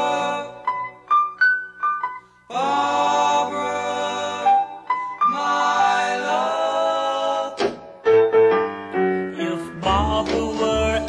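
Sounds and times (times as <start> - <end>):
doo-wop vocal harmonies: 0.0 - 1.0, 2.5 - 8.1, 9.2 - 11.0.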